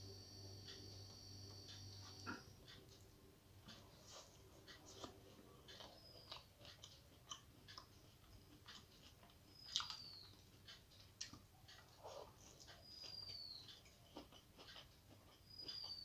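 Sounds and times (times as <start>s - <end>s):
chewing mouth sounds: 4.8s - 16.0s.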